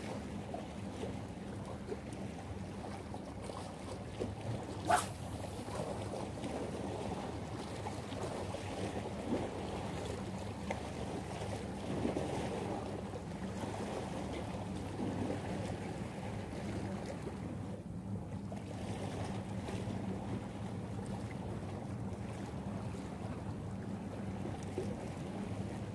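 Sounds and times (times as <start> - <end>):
waves lapping against rocks: 2.7 - 12.9.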